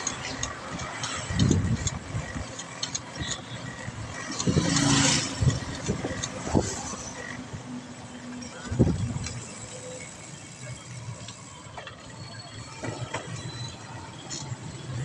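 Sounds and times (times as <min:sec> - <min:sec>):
road traffic: 0:00.0 - 0:15.0
wind buffeting microphone: 0:00.5 - 0:02.6, 0:03.2 - 0:07.0, 0:08.6 - 0:09.4
motor vehicle engine passing: 0:04.2 - 0:07.1.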